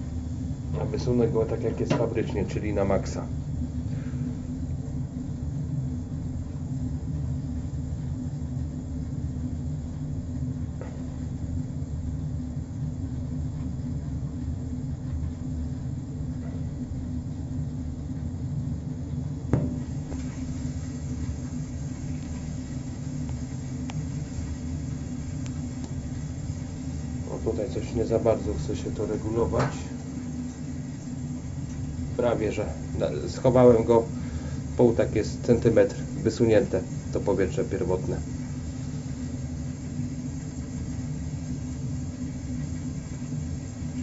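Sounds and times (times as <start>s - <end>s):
wood boiler rumbling: 0.0s - 44.0s
sharp knock: 19.5s - 19.8s.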